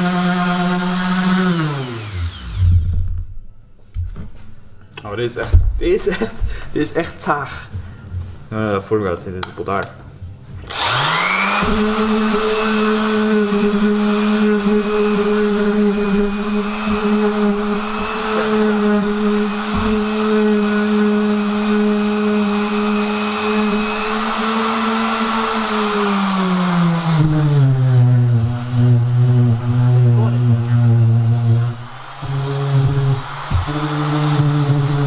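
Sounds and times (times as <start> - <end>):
orbital sander motor hum: 0.0 - 2.9, 10.7 - 35.0.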